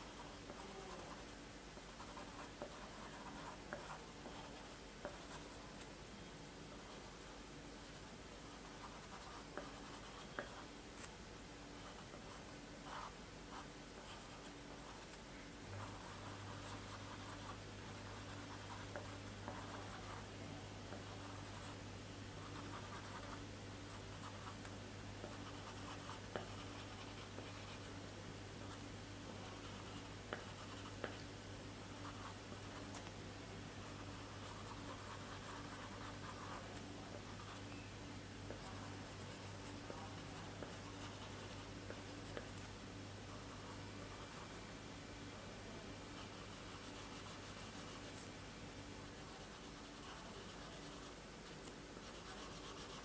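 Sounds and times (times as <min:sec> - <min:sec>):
pencil scratching on paper: 0:00.0 - 0:05.6, 0:07.8 - 0:11.1, 0:15.8 - 0:20.3, 0:22.4 - 0:24.6, 0:25.2 - 0:27.9, 0:33.8 - 0:37.6, 0:38.5 - 0:42.7, 0:46.2 - 0:48.2, 0:49.1 - 0:53.0.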